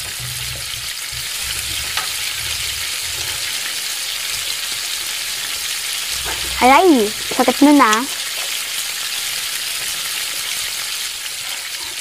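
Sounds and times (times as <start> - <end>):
food deep-frying in oil: 0.0 - 12.0.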